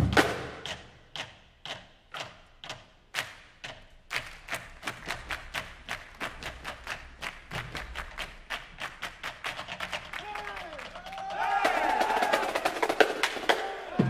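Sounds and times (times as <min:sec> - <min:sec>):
people clapping in unison: 0:03.2 - 0:13.8.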